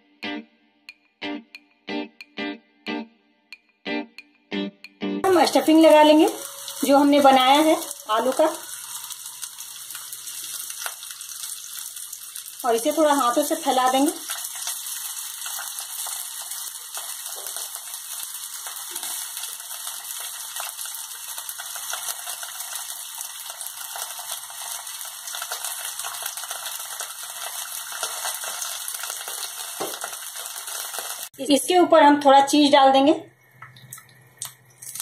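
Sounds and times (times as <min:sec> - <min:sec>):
batter sizzling in hot oil: 0:05.3 - 0:31.4, 0:34.4 - 0:35.0.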